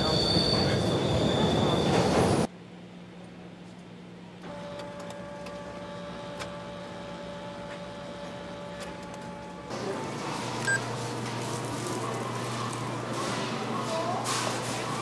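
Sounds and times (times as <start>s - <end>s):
photocopier whirring: 4.5s - 15.0s.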